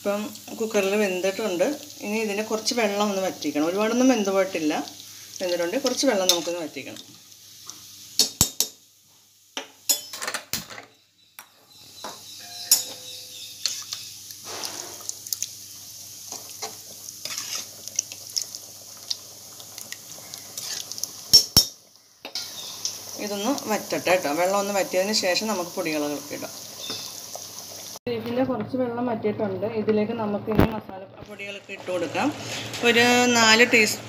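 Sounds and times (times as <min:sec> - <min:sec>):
low hiss of cooking gravy: 0:00.0 - 0:10.0, 0:13.1 - 0:28.0, 0:31.3 - 0:34.0
ladle clinking and scraping pot: 0:12.4 - 0:14.0, 0:17.2 - 0:17.8, 0:20.6 - 0:22.6.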